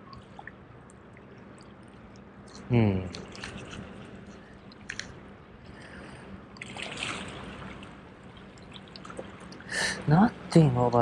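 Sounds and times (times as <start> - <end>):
seawater lapping against rocks: 3.2 - 5.1, 6.6 - 9.7.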